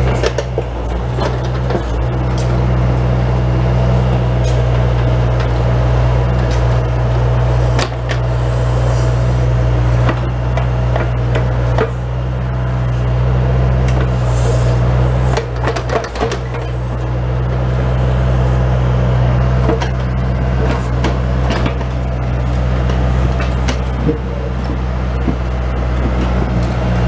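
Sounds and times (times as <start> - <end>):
diesel engine running: 0.0 - 27.0
bucket clunking and scraping dirt: 13.8 - 16.9, 19.5 - 26.8.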